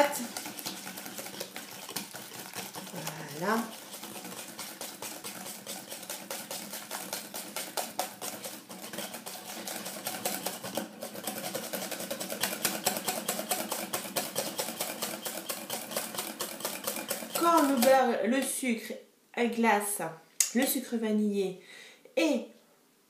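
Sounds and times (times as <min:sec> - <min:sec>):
whisk clicking against glass bowl: 0:00.0 - 0:18.1.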